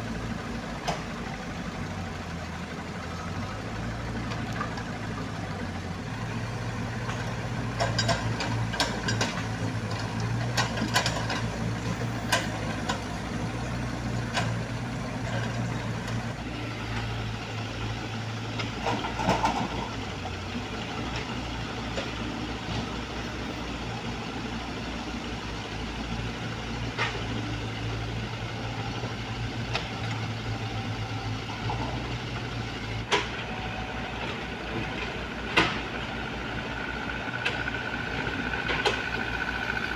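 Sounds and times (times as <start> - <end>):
diesel excavator engine running: 0.0 - 39.9.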